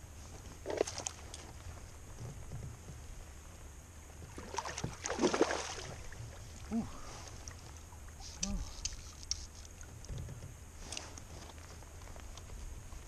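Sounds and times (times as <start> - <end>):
water splash: 4.4 - 6.1.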